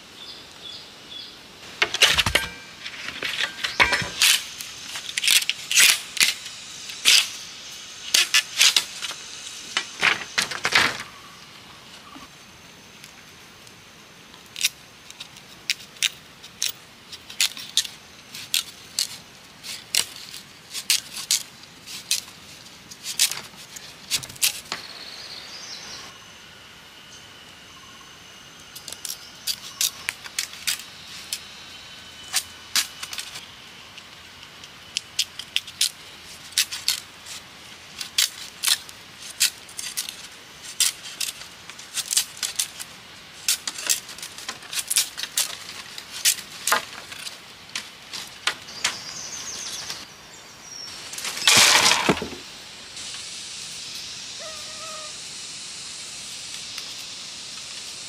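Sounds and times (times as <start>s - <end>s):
background hiss: 0.0s - 58.0s
knife scraping bamboo: 1.8s - 7.4s, 8.0s - 10.5s, 14.6s - 24.7s, 34.9s - 47.5s
bird calls: 54.4s - 55.2s.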